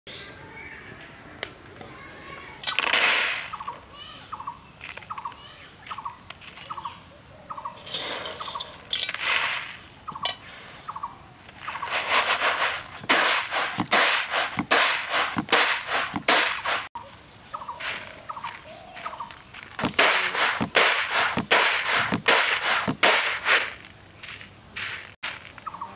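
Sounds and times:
seeds shaken on winnowing tray: 0:11.6 - 0:16.9, 0:19.8 - 0:25.6
dried seeds rattling in metal pot: 0:11.8 - 0:16.9, 0:19.8 - 0:23.9.

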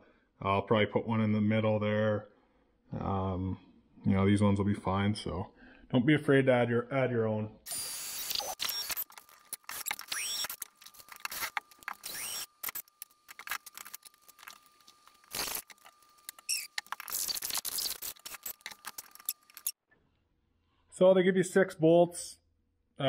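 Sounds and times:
short squeaks: 0:08.1 - 0:14.1, 0:16.3 - 0:19.8.

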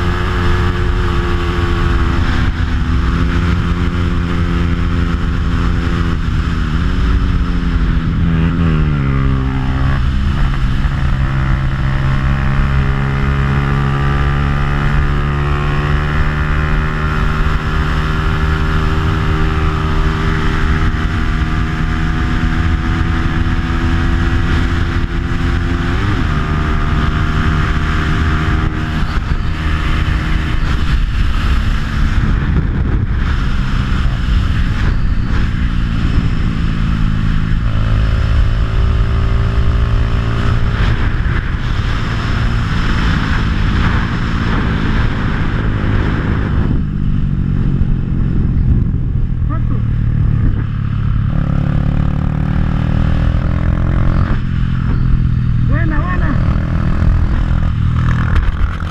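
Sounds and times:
motorcycle engine revving: 0:00.0 - 0:58.9
wind rumble on microphone: 0:00.0 - 0:58.9.

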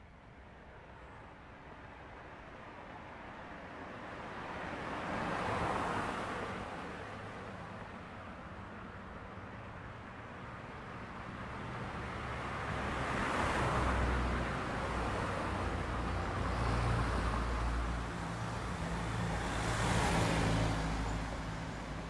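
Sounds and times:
road traffic passing: 0:09.0 - 0:22.0.

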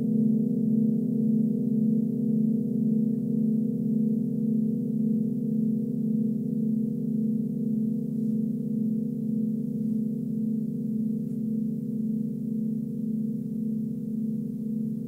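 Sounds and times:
singing bowls ringing: 0:00.0 - 0:15.0.

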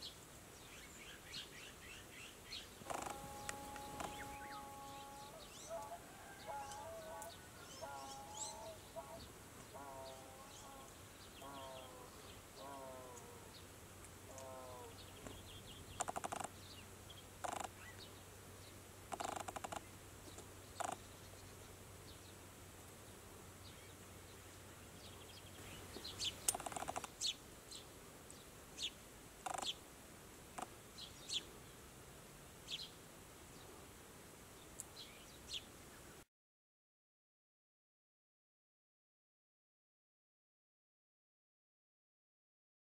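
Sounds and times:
magpies harsh rasping calls: 0:02.8 - 0:04.6, 0:17.4 - 0:17.7, 0:19.1 - 0:19.9, 0:26.5 - 0:27.1, 0:29.4 - 0:29.8.

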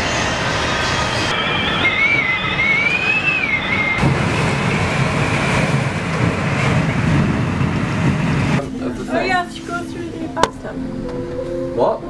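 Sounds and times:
storm wind rushing: 0:00.0 - 0:08.6
high wavering whistle: 0:00.4 - 0:04.0.

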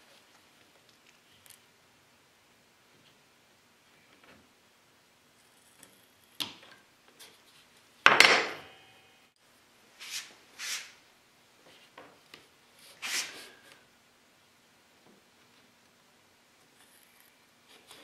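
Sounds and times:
short scrapes: 0:13.0 - 0:13.6.

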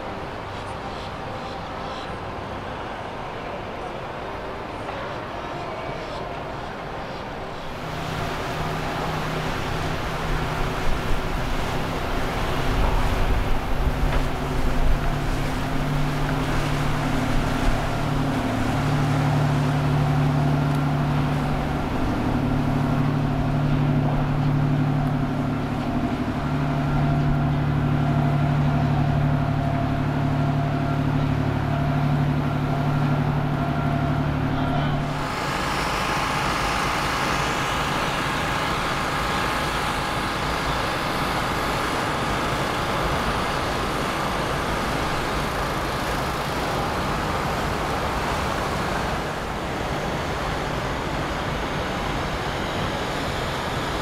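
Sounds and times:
boat engines humming: 0:00.0 - 0:54.0
churning wake rushing: 0:00.0 - 0:54.0.

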